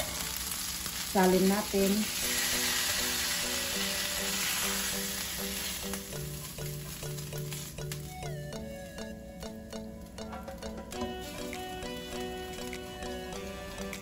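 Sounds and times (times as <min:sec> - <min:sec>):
frying pan sizzling: 0:00.0 - 0:14.0
background music with repeating notes: 0:02.2 - 0:14.0.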